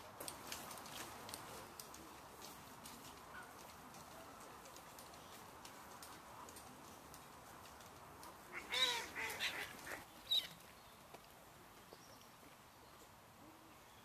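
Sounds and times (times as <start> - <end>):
waterbirds calling harshly: 8.5 - 10.6.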